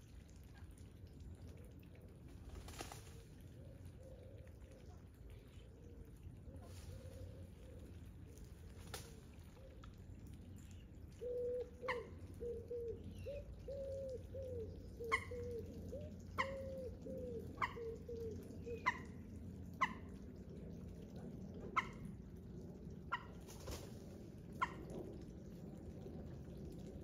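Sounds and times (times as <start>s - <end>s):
bird cooing: 3.5s - 8.0s, 11.1s - 19.1s.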